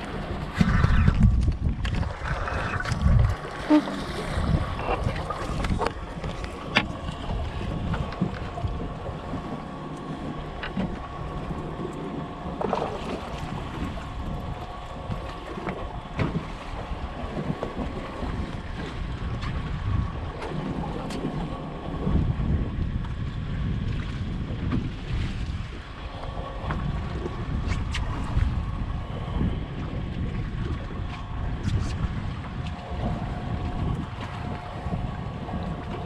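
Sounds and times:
faint steady hum: 0.0 - 36.0
water against boat hull: 0.0 - 36.0
wind on microphone: 0.0 - 36.0
sharp knocks on boat: 6.7 - 7.0, 15.6 - 16.6.

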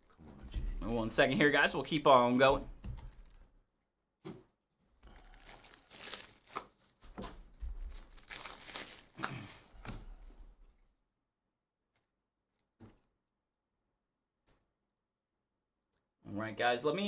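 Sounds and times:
packaging crinkling and tearing: 3.0 - 3.5, 5.0 - 9.8.

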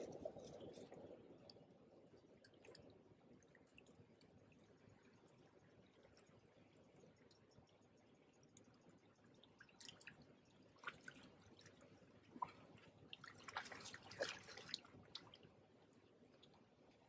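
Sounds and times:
water splashing and dripping: 13.2 - 15.4.

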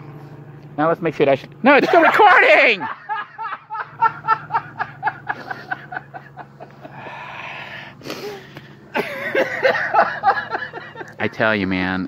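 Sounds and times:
man laughing: 1.7 - 11.6
wheezing breath and gasp: 6.8 - 8.8.

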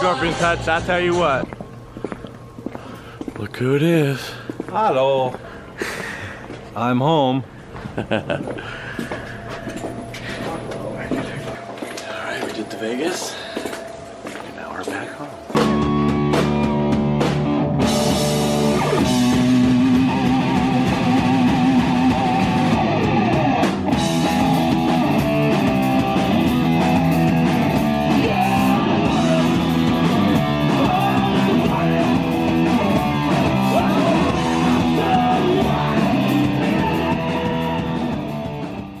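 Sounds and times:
loud punk rock music: 15.5 - 39.0.

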